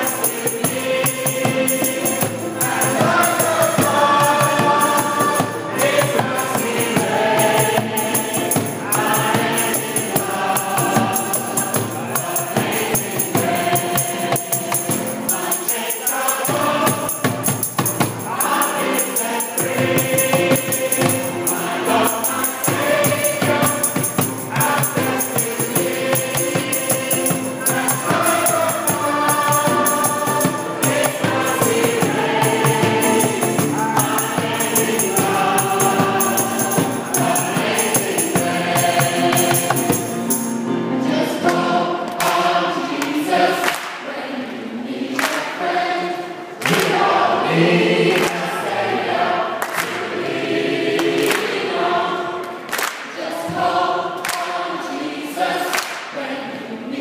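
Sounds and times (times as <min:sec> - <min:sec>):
hand drums: 0:00.0 - 0:40.6
jingling tambourine: 0:00.0 - 0:40.8
group singing worship song: 0:00.0 - 0:57.0.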